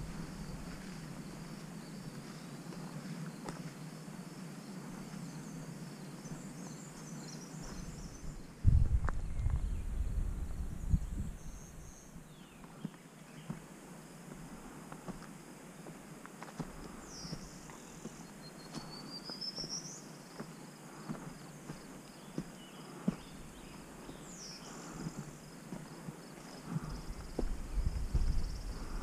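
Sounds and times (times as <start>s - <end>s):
low rumble on microphone: 0.0s - 1.4s, 7.8s - 12.4s, 26.7s - 29.0s
insects trilling: 0.0s - 29.0s
faint chirps: 16.8s - 29.0s.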